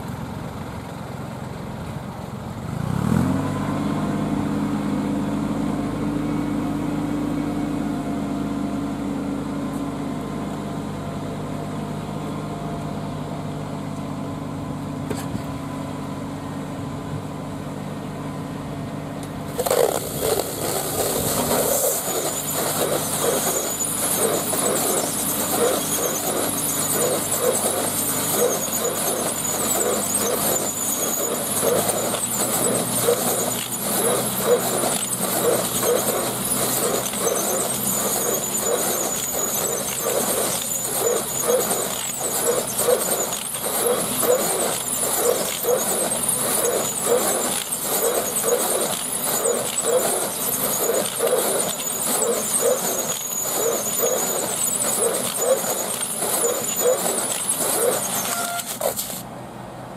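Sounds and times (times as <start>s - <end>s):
bale wrapper motor humming: 19.2s - 59.3s
stretch film crackling and squealing: 19.5s - 59.2s.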